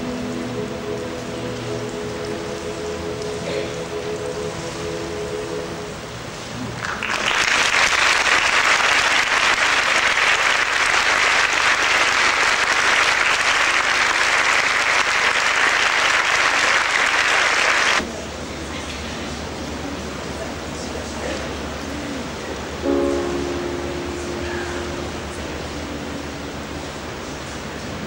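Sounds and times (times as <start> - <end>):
audience applauding: 6.6 - 18.0.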